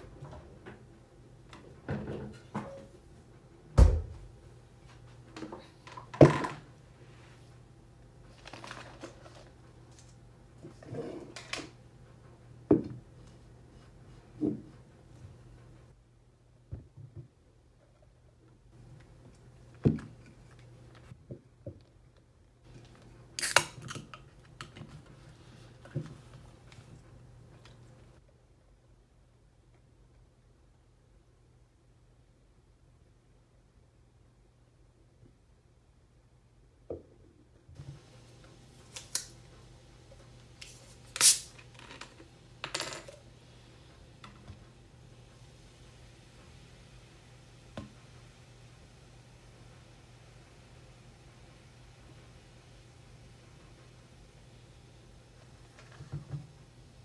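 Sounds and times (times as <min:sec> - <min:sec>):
can pull tab cracking open: 0:23.4 - 0:24.1.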